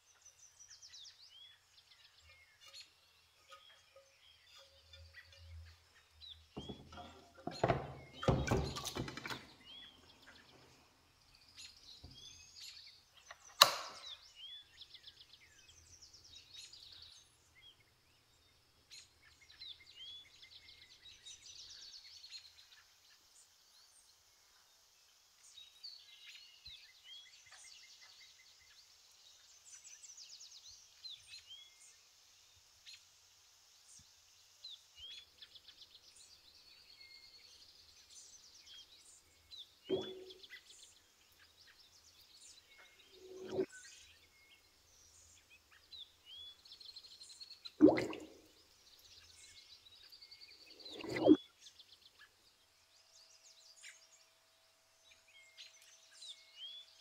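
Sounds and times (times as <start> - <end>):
small birds chirping: 0.0 - 33.1, 33.8 - 57.0
metal knocking into water tub: 6.6 - 9.6, 39.9 - 40.4, 47.8 - 48.3
sharp click: 13.4 - 14.2.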